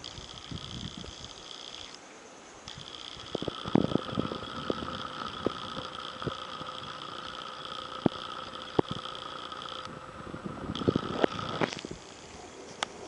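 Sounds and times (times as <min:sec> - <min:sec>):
high multi-tone drone: 0:02.7 - 0:12.2.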